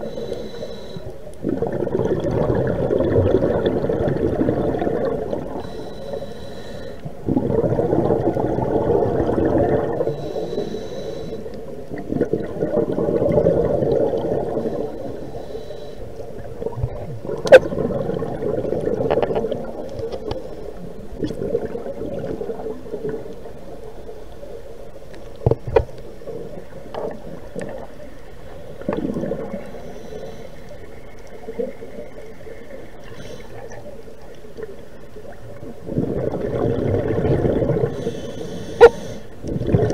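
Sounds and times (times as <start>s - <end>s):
scuba regulator breathing underwater: 0.0s - 11.8s, 12.4s - 16.5s, 28.9s - 31.0s, 33.0s - 33.9s, 36.0s - 39.9s
exhaled bubbles gurgling: 1.3s - 5.8s, 7.0s - 15.5s, 16.1s - 29.9s, 30.6s - 39.9s.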